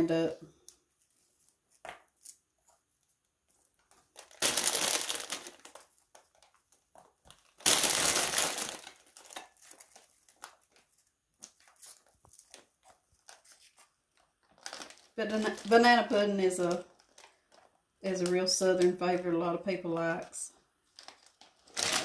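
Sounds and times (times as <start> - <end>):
plastic bag crinkling: 3.4 - 18.8, 20.8 - 22.0.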